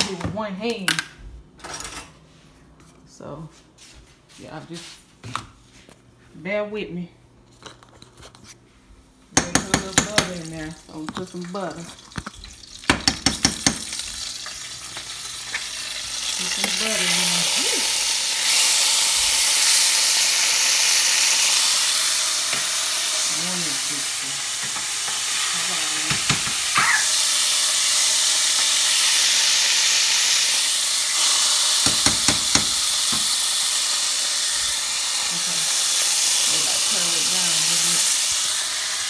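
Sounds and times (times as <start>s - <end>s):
bacon sizzling in a skillet: 9.8s - 39.0s.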